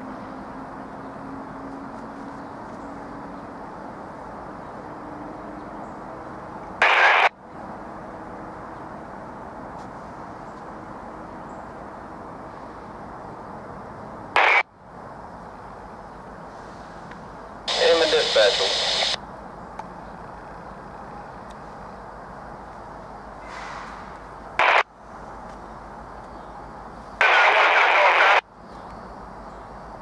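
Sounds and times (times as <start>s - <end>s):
loud burst of hiss: 17.7s - 19.2s
faint low hum: 17.7s - 23.2s.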